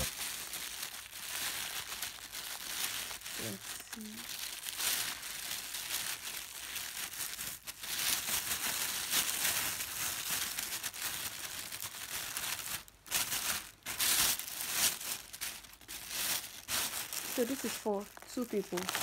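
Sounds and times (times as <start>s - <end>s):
plastic bag crinkling: 0.0s - 19.0s.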